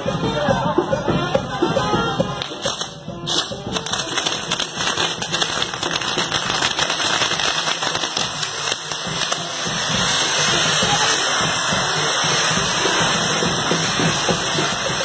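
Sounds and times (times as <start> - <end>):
fireworks crackling: 0.0 - 15.0.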